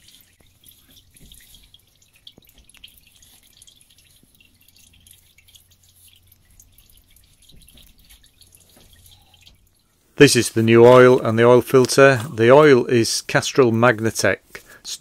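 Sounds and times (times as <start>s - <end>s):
oil dripping into container: 0.0s - 13.4s.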